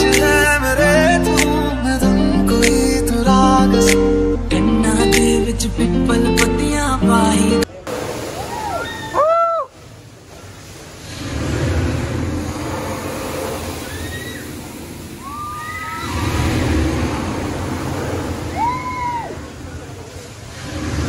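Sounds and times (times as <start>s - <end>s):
riders screaming: 8.4s - 9.8s, 13.7s - 16.6s, 17.9s - 20.0s
pendulum ride whooshing rumble: 9.7s - 21.0s.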